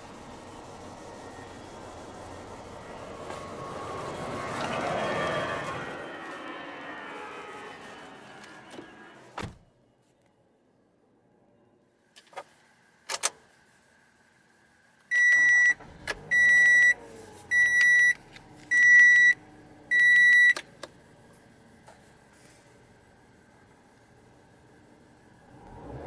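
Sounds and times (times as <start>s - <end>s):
car engine starting and idling: 0.0s - 9.6s, 15.1s - 26.0s
car warning chime beeps: 15.1s - 20.6s.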